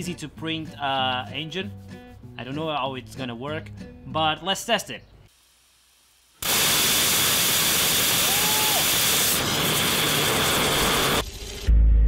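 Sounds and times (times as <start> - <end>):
rocket engine rushing hiss: 6.4 - 11.2.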